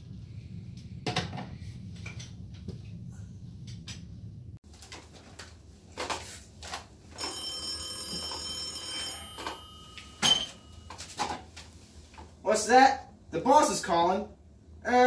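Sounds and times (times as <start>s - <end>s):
desk telephone ringing: 7.1s - 11.0s.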